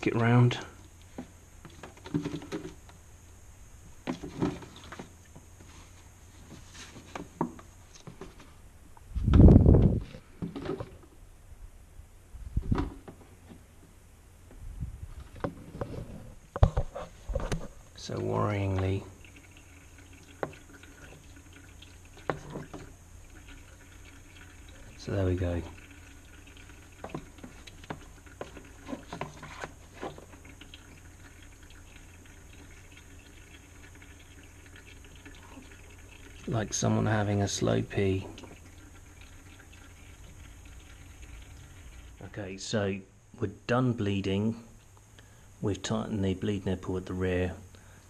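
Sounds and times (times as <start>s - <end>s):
brake fluid trickling: 16.4s - 42.4s.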